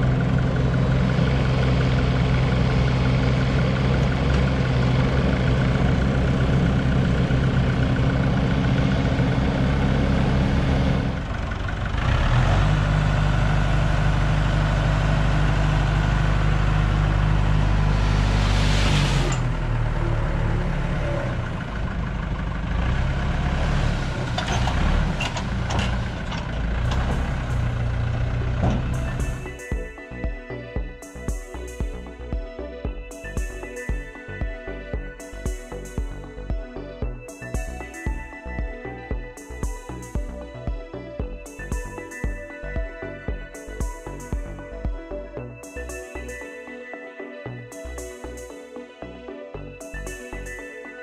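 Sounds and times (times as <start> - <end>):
mini excavator engine working: 0.0 - 30.2
tractor engine running: 0.0 - 46.4
rushing noise of hydraulic trailer: 16.4 - 22.0.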